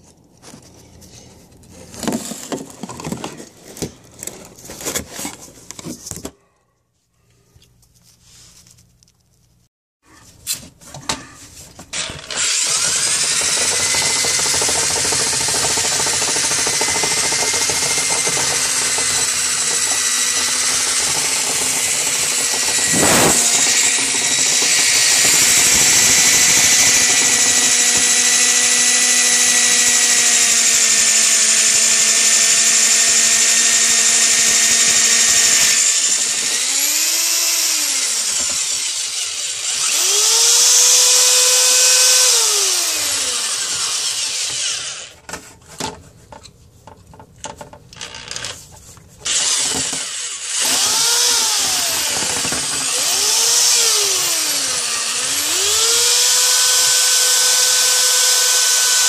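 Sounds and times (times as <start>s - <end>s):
power drill motor whine: 11.9s - 45.2s, 49.2s - 59.0s.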